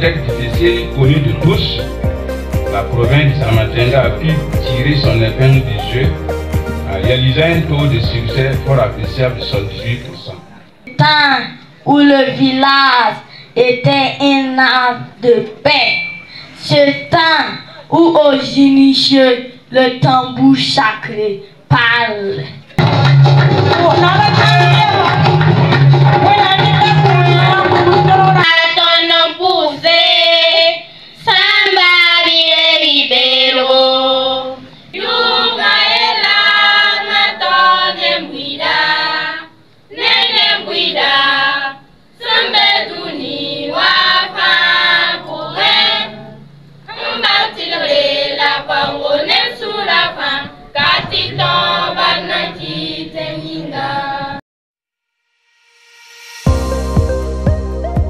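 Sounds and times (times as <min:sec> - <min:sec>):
music: 0:00.0 - 0:10.4, 0:22.8 - 0:28.8, 0:55.1 - 0:58.0
children's choir singing: 0:26.2 - 0:54.4.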